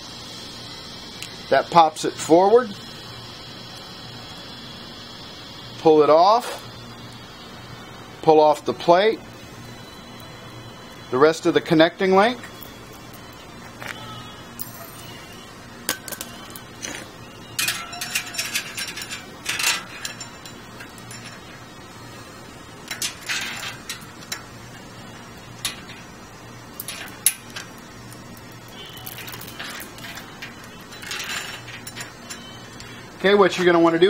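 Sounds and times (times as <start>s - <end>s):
metal chain clinking and rattling: 14.6s - 15.2s, 15.9s - 21.6s, 22.8s - 32.9s.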